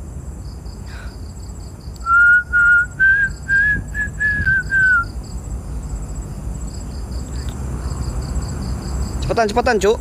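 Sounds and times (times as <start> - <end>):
crickets chirping: 0.0 - 10.0
person whistling: 2.0 - 5.1.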